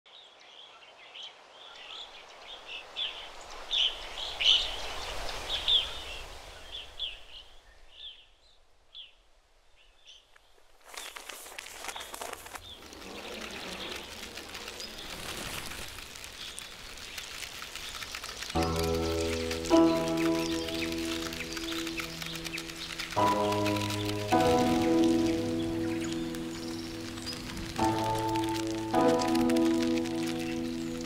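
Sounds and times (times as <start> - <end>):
birds chirping: 9.8 - 31.0
dense crackle of small ticks: 10.9 - 31.0.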